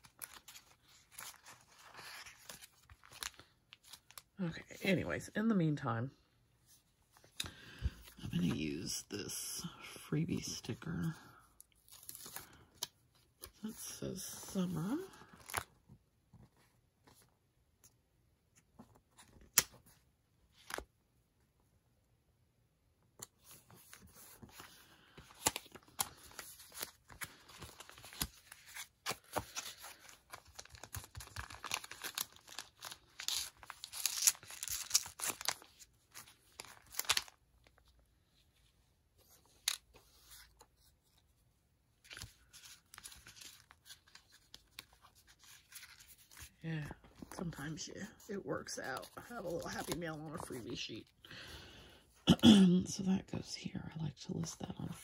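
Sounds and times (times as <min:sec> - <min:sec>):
paper rustling and crinkling: 0:00.0 - 0:04.4, 0:10.4 - 0:17.9, 0:23.2 - 0:51.1.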